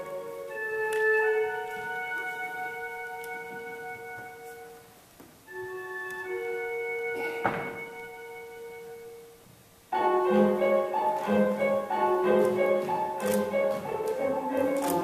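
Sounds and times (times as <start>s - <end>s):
music with quickly changing notes: 9.9s - 15.0s.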